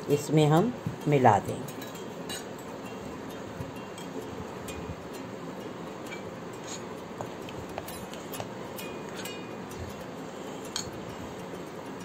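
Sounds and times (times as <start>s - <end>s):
spoon clinking against bowl: 1.6s - 11.1s.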